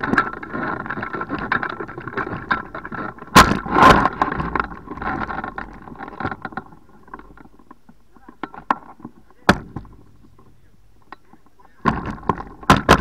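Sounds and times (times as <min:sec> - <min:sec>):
wheels rattling over gravel: 0:00.0 - 0:13.0
loud thumps on ground: 0:09.4 - 0:10.0, 0:11.8 - 0:13.0.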